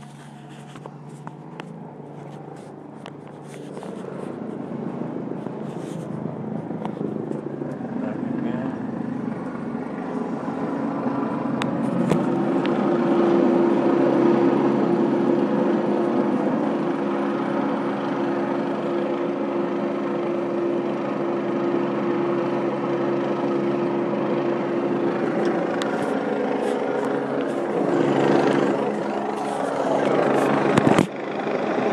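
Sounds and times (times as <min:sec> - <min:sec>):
helicopter hovering overhead: 0:00.0 - 0:31.9.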